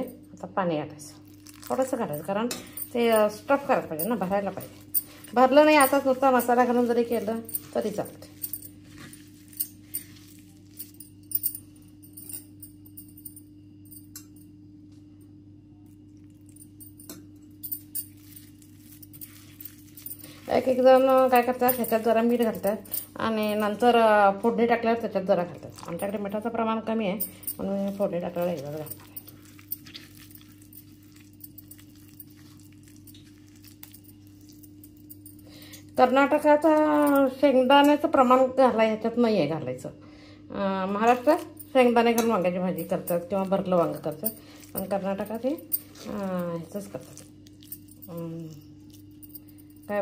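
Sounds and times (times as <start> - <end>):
steady low hum: 0.0 - 50.0
paste kneaded in stone mortar: 1.2 - 11.3, 17.8 - 26.5, 27.5 - 34.9, 42.8 - 49.2.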